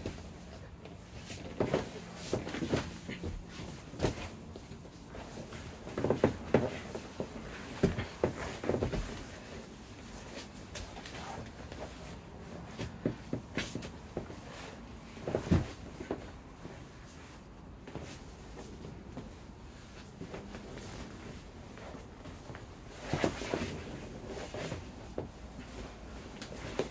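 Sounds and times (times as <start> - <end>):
bodies thumping on foam mats: 0.0 - 16.8, 17.8 - 26.9.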